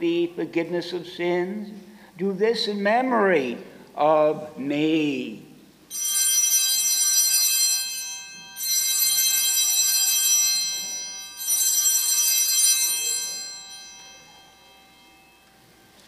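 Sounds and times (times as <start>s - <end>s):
altar bells ringing: 5.9s - 16.0s.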